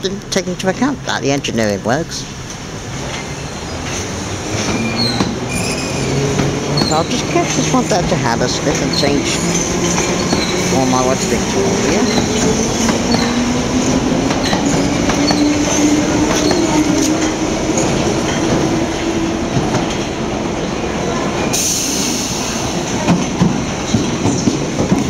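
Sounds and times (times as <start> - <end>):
train rumble: 0.0 - 25.0
train wheel squeals: 3.2 - 7.2, 8.8 - 10.7, 11.9 - 13.4, 14.4 - 17.0.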